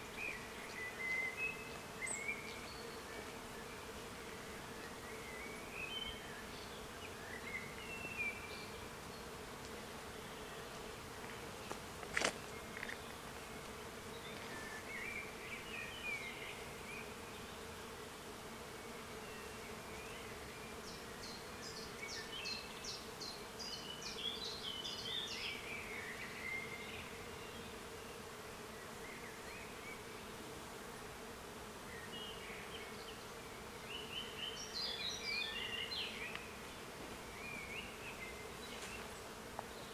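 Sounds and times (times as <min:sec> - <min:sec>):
steady buzzing hum: 0:00.0 - 0:39.9
birds chirping: 0:32.0 - 0:39.9.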